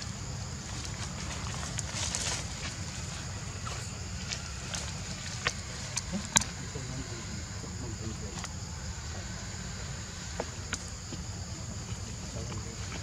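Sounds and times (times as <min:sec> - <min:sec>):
high insect drone: 0:00.0 - 0:13.0
dry leaves crackling: 0:00.6 - 0:06.0.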